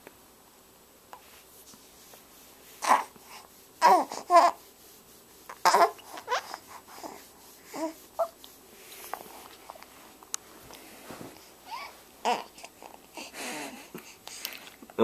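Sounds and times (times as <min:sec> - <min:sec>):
newborn baby fussing: 0:02.8 - 0:04.8, 0:05.4 - 0:09.9, 0:11.4 - 0:14.3.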